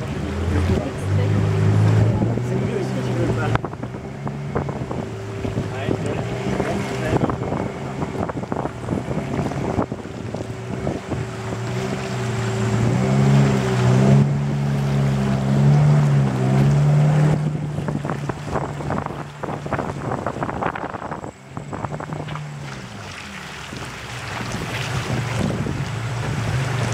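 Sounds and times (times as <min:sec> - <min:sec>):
boat motor running: 0:00.0 - 0:26.9
water splashing against hull: 0:00.0 - 0:26.9
wind buffeting microphone: 0:00.0 - 0:26.9.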